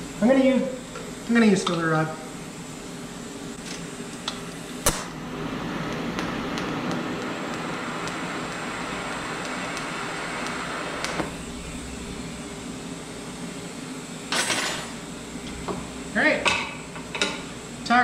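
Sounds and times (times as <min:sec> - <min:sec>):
welding arc hissing: 0:00.0 - 0:18.0
welding arc crack: 0:03.7 - 0:12.6
welder click: 0:05.9 - 0:11.3.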